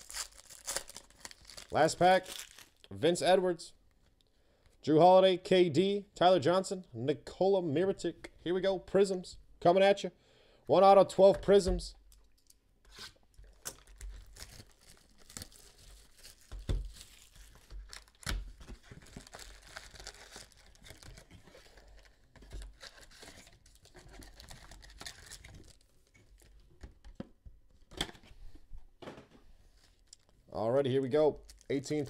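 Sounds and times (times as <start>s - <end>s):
cardboard tearing: 0.0s - 1.7s
foil wrappers crinkling: 0.0s - 2.9s, 13.7s - 26.5s, 31.4s - 32.0s.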